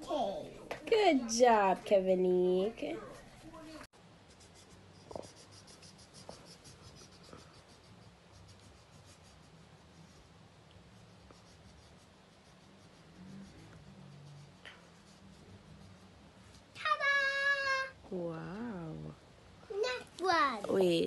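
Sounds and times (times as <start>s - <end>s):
scribbling on paper: 4.2s - 16.2s.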